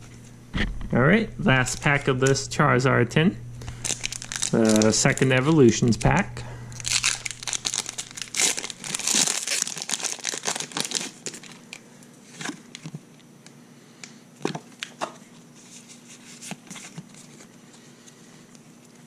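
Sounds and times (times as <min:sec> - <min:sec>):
foil wrapper crinkling and tearing: 0:03.6 - 0:05.9, 0:06.7 - 0:11.8.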